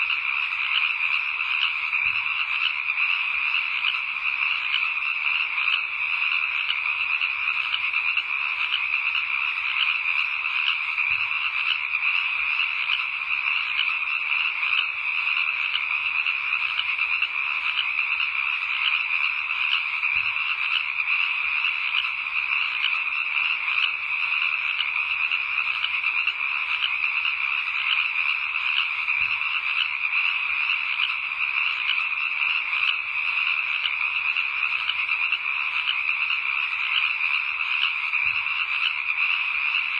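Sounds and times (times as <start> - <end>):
chorus of frogs calling: 0.0 - 39.9.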